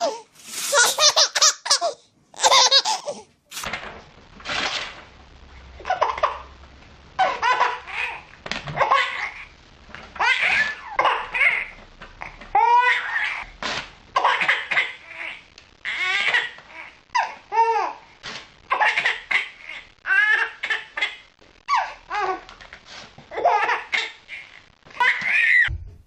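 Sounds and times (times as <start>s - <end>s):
baby laughing: 0.0s - 3.3s, 5.8s - 6.5s, 7.2s - 9.5s, 10.2s - 13.4s, 18.7s - 22.4s, 23.3s - 25.7s
paper tearing: 0.4s - 1.0s, 3.5s - 5.0s, 13.6s - 14.0s.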